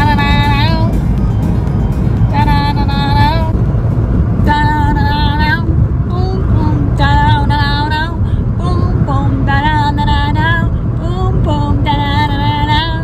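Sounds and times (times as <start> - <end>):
woman singing: 0.0 - 1.0, 2.3 - 3.6, 4.4 - 13.0
car road rumble: 0.0 - 13.0.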